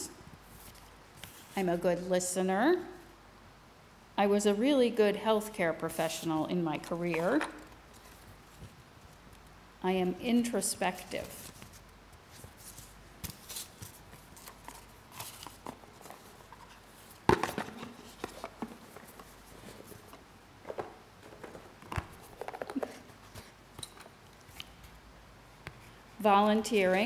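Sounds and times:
paper rustling: 11.0 - 23.6.

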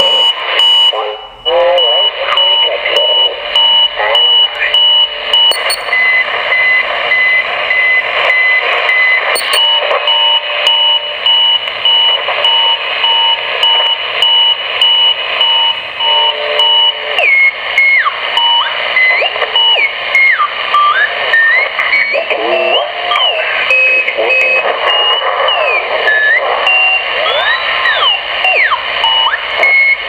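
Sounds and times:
electronic beeping on radio: 1.8 - 8.0, 9.4 - 15.7.

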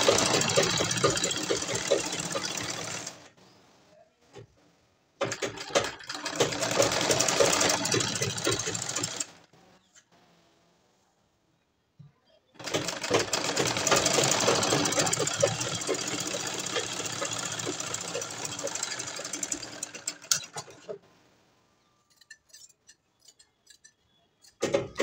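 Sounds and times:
sewing machine stitching: 0.0 - 3.3, 5.2 - 9.4, 12.6 - 21.0.

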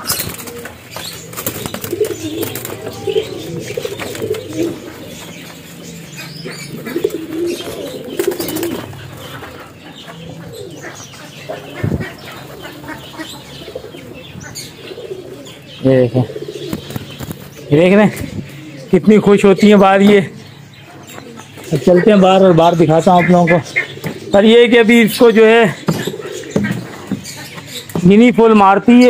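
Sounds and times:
wings flapping: 0.0 - 5.7, 6.7 - 9.8, 16.6 - 18.3
pigeons cooing: 0.0 - 29.0.

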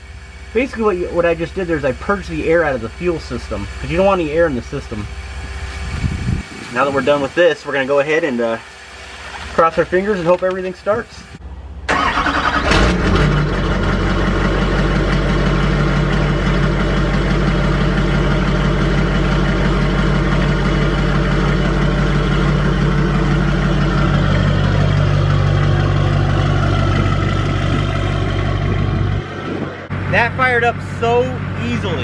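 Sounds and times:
diesel engine starting and idling: 0.0 - 32.0.

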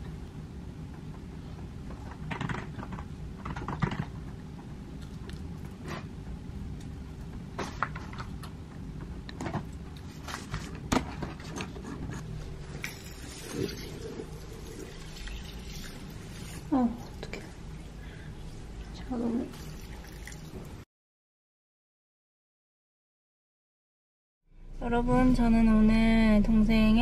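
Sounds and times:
steady low hum: 0.0 - 20.8, 24.5 - 27.0
chewing: 5.0 - 6.1.

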